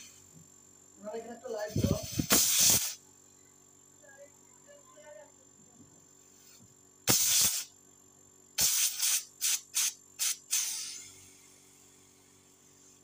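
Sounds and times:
compressor running: 0.0s - 4.5s, 5.4s - 13.0s
air hissing blasts: 1.6s - 3.0s, 6.4s - 7.7s, 8.6s - 13.0s.

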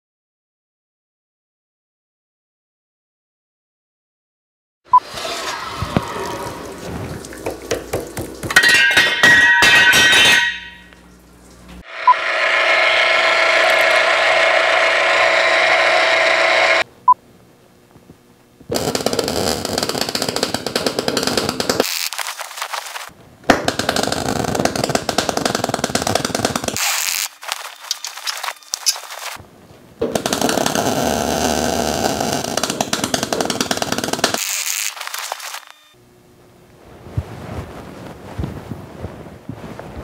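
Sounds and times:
cold saw cutting steel: 11.8s - 16.9s, 26.7s - 29.2s
drill press whirring: 11.9s - 16.9s
welding crackling: 18.7s - 29.4s, 30.0s - 36.0s.

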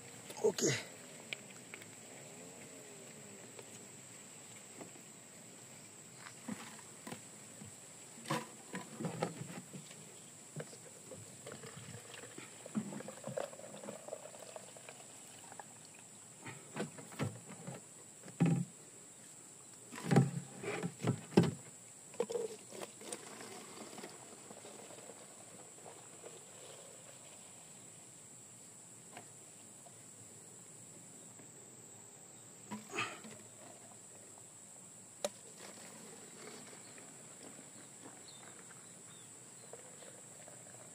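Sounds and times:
liquid pouring: 11.6s - 16.0s, 22.2s - 26.9s.

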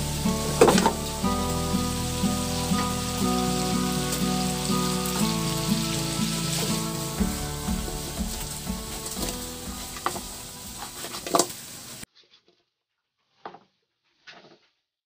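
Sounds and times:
background music with bass: 0.0s - 11.0s
meat sizzling in oil: 0.0s - 12.1s.

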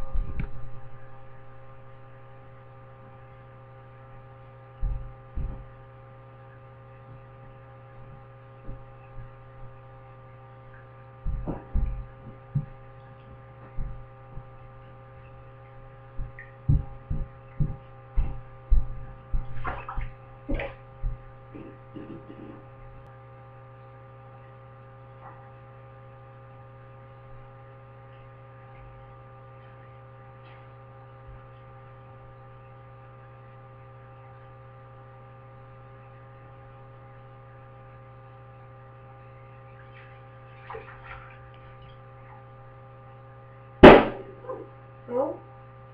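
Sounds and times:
steady electrical hum: 0.0s - 45.9s
hand scooping water in sink: 19.4s - 20.8s, 39.8s - 42.5s.

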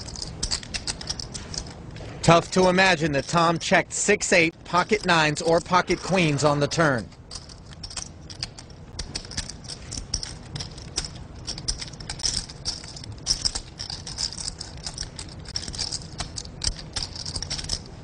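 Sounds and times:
poker chips clicking: 0.0s - 1.8s, 7.1s - 17.9s.

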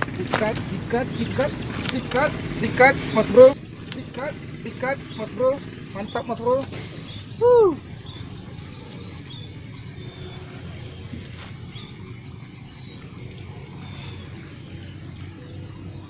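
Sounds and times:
faint bird chirps: 3.4s - 16.0s
high-pitched insect buzz: 3.5s - 16.0s.

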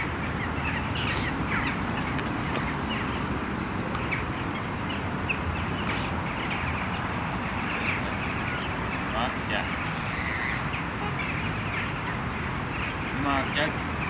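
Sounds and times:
birds calling: 0.0s - 14.0s
outdoor background noise: 0.0s - 14.0s.

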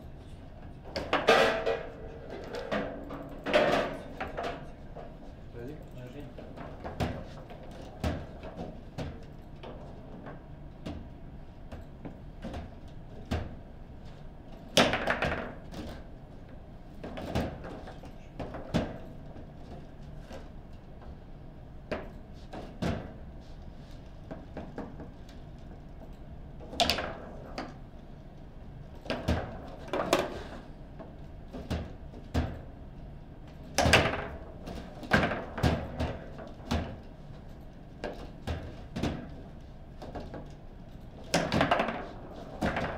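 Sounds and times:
table football knocks and clacks: 14.8s - 16.0s, 33.8s - 37.0s, 41.3s - 42.9s.

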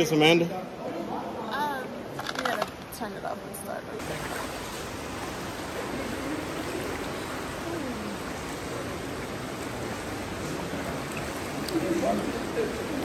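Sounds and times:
river water rushing: 4.0s - 13.0s.

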